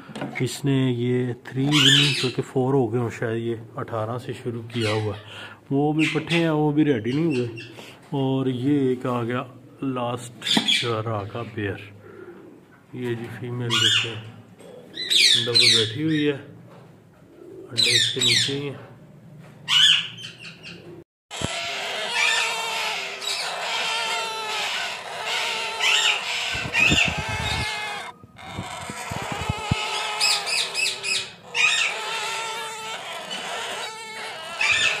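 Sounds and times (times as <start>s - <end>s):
parakeets calling and squawking: 1.6s - 2.4s, 10.4s - 11.5s, 15.0s - 16.3s, 19.7s - 35.0s.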